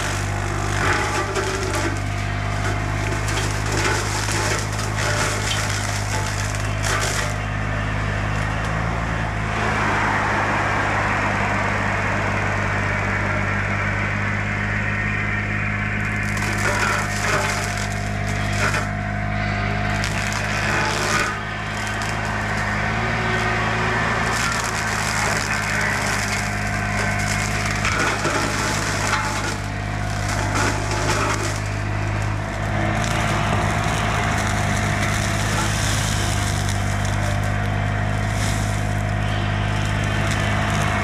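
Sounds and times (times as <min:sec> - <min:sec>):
wood splintering and cracking: 0:00.0 - 0:07.6, 0:16.0 - 0:41.0
diesel engine under load: 0:00.0 - 0:41.0
mower shredding brush: 0:00.0 - 0:41.0.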